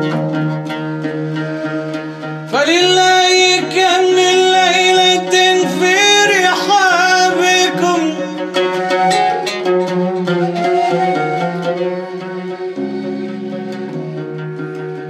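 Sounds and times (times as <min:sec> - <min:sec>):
plucked string accompaniment: 0:00.0 - 0:15.0
man singing melismatic line: 0:02.5 - 0:09.3.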